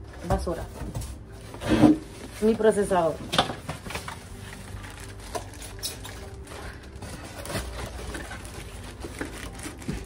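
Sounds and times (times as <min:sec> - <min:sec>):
plastic wrapping rustling: 0:00.2 - 0:10.0.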